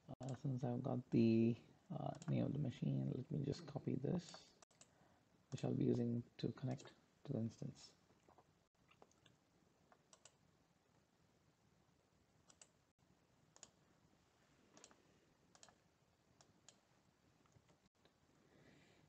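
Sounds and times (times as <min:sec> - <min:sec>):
faint computer mouse clicks: 0:09.1 - 0:10.4, 0:12.5 - 0:12.7.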